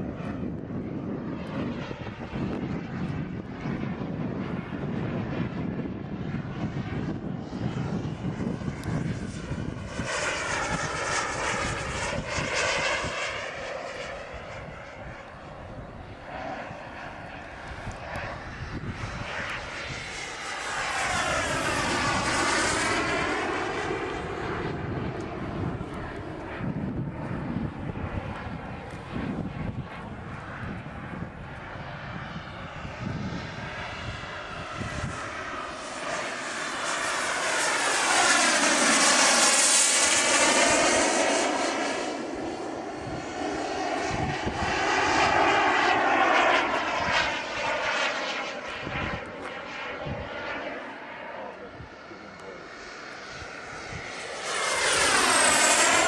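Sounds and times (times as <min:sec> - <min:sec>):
model jet turbine whine: 0:00.0 - 0:56.0.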